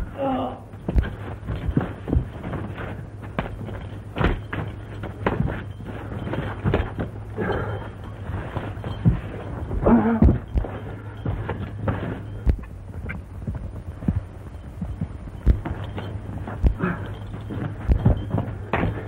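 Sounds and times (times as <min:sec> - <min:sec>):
low soundtrack hum: 0:00.0 - 0:19.0
thuds of blows: 0:00.0 - 0:19.0
short grunts: 0:07.3 - 0:08.0, 0:09.7 - 0:10.5.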